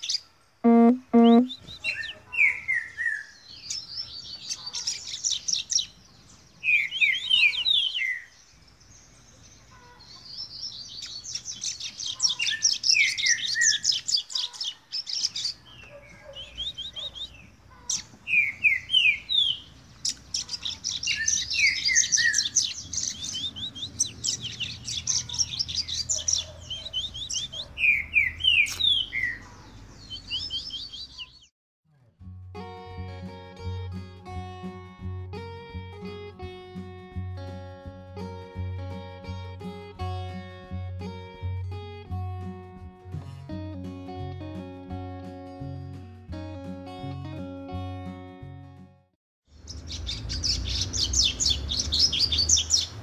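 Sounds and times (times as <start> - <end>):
bird singing trills and whistles: 6.6 - 8.3, 10.4 - 29.4, 30.0 - 31.5, 49.7 - 53.0.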